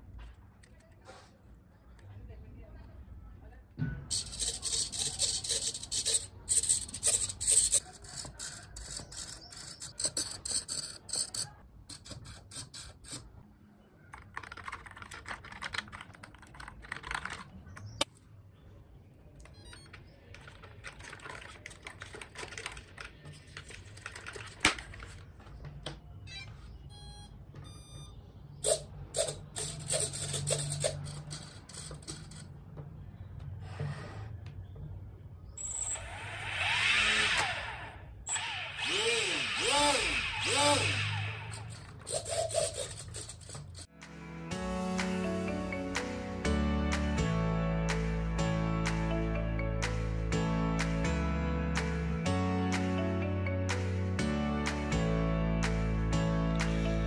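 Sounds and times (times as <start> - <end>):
servos whirring: 4.1 - 13.3, 28.6 - 32.5, 35.6 - 43.9
electronic beeps: 19.5 - 20.1, 26.2 - 28.4, 35.6 - 36.1.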